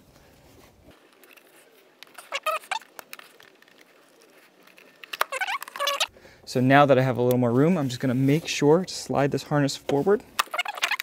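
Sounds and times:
plastic squeaking against rubber: 1.2s - 6.1s, 10.4s - 11.0s.

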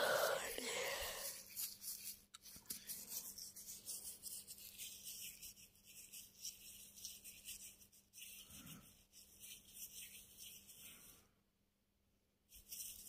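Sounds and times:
light rubbing and rustling: 1.3s - 11.1s.

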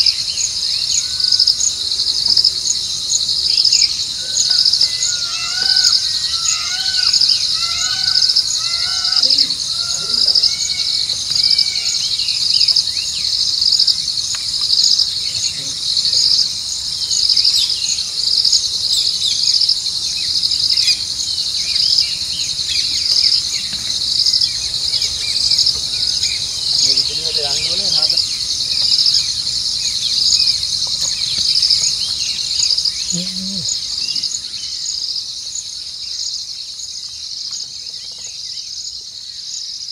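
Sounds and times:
birds chirping: 0.0s - 39.9s
insect chorus trilling: 0.0s - 39.9s.

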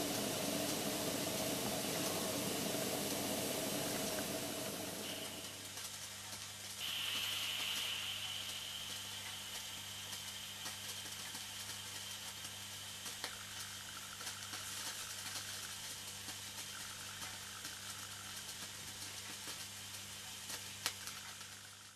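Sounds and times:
toy steam engine hissing: 6.7s - 15.8s.

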